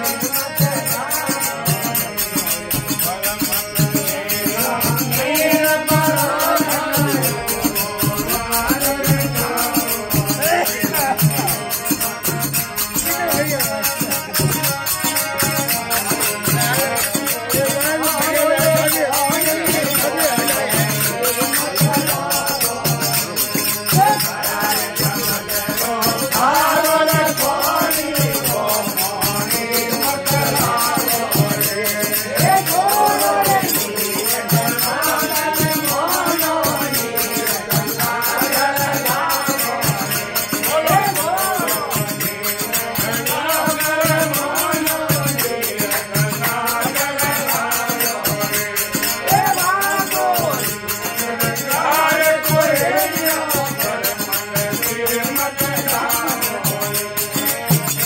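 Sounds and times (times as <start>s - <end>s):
hand cymbals jingling: 0.0s - 58.0s
harmonium: 0.0s - 58.0s
men singing devotional song: 0.0s - 58.0s.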